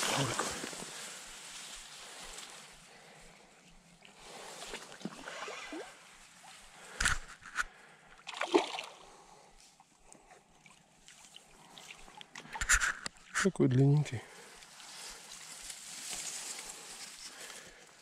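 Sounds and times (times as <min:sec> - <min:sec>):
sharp water splashes: 0:04.7 - 0:06.0, 0:08.2 - 0:09.0.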